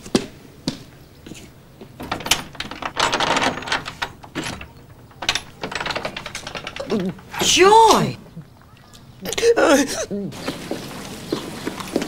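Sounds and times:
footsteps on stone steps: 0:00.0 - 0:02.0, 0:10.4 - 0:12.0.

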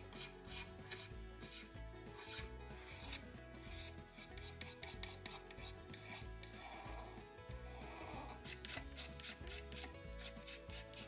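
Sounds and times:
sandpaper rubbing wood: 0:00.0 - 0:11.0.

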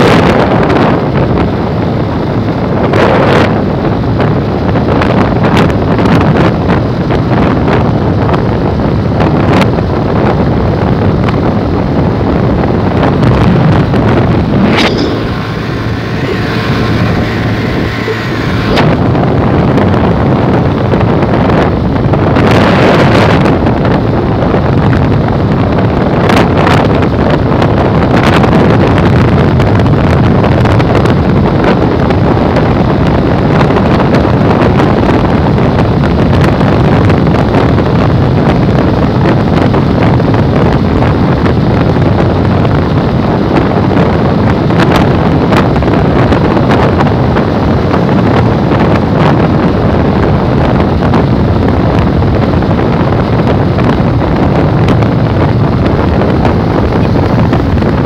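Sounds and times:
motorcycle tyre and road noise: 0:00.0 - 0:28.2
wind rush on microphone: 0:00.0 - 0:58.0.

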